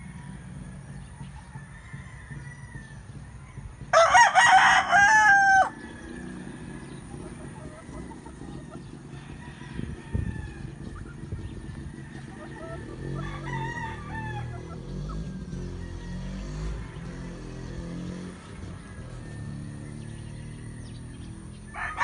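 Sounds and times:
rooster crowing: 1.4 - 6.8, 9.1 - 10.9, 11.8 - 17.2, 21.7 - 22.0.

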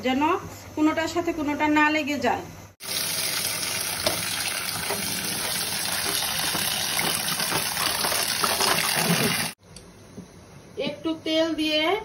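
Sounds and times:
tap water pouring onto strainer: 2.8 - 9.6.

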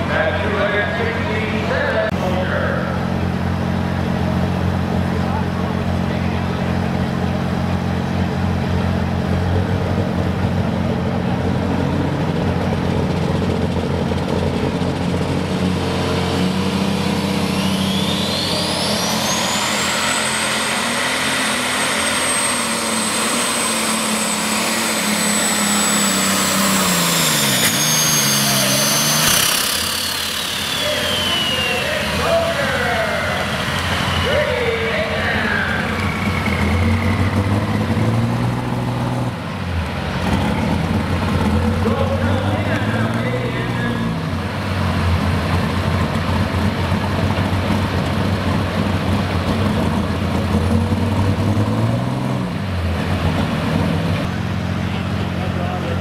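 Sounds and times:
high turbocharger whine: 0.0 - 56.0
tractor engine running: 0.0 - 56.0.

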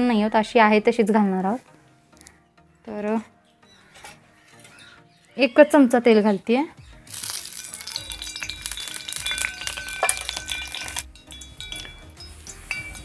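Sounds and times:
background music with bell notes: 0.0 - 13.0
oil sizzling in a hot pan: 7.1 - 13.0.

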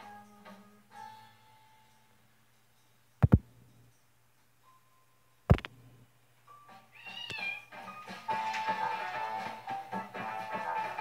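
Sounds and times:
loud sharp thumps: 3.2 - 3.5, 5.5 - 5.8.

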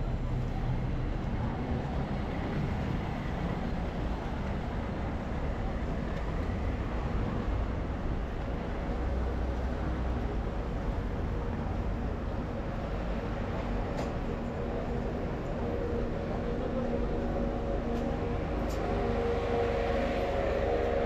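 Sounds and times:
road traffic rumble: 0.0 - 21.0
low engine drone: 9.2 - 21.0.

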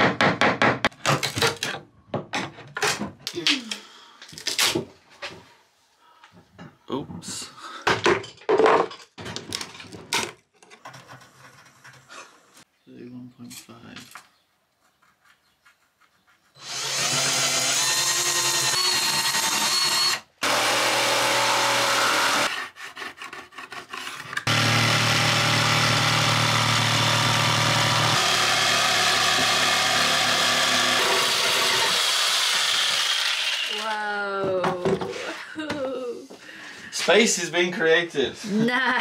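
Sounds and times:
jigsaw cutting wood: 16.6 - 22.6, 24.4 - 34.0.

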